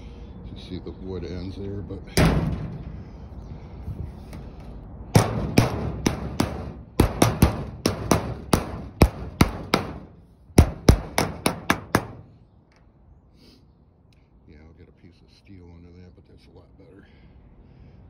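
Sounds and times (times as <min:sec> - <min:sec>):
hammer striking copper sheet: 0:05.1 - 0:12.3.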